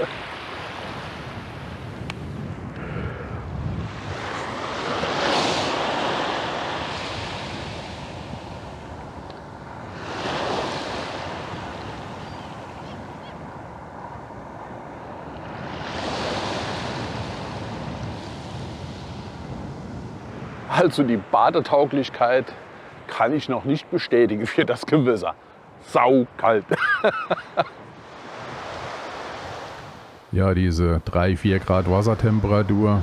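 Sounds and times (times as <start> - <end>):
wind on microphone: 0.0 - 20.7, 27.7 - 30.1
waves breaking on a beach: 0.0 - 30.3, 31.6 - 33.0.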